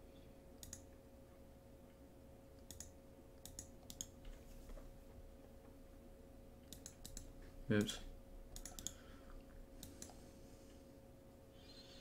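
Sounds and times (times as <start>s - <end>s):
faint steady hum: 0.0s - 12.0s
faint computer mouse clicks: 0.6s - 0.9s, 2.6s - 4.2s, 6.7s - 7.9s, 8.5s - 9.0s, 9.8s - 10.2s.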